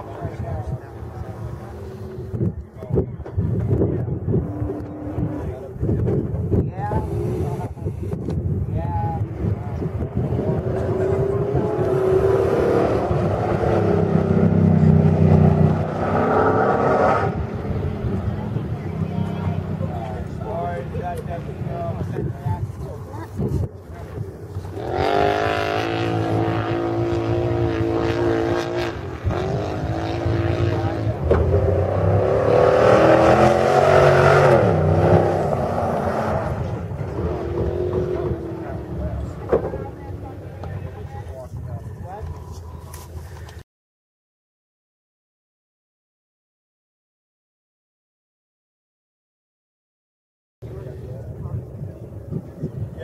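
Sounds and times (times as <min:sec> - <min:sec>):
truck engine accelerating: 0:09.2 - 0:43.2
truck engine passing by: 0:24.6 - 0:40.6.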